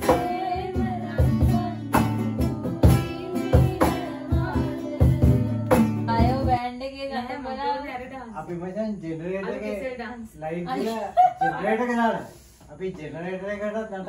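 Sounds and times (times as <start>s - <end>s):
acoustic guitar strumming: 0.0s - 6.6s
people singing along: 0.0s - 6.6s
hand clapping beat: 1.9s - 2.2s
people talking: 6.1s - 14.0s
people laughing: 10.8s - 12.0s.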